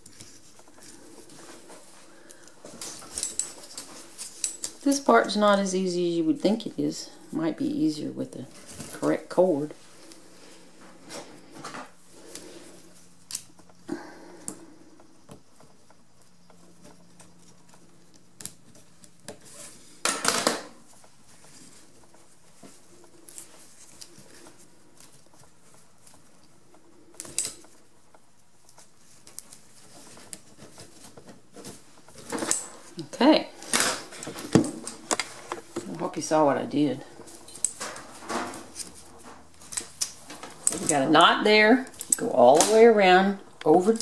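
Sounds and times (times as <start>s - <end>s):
rustling scrape: 0.0s - 5.4s.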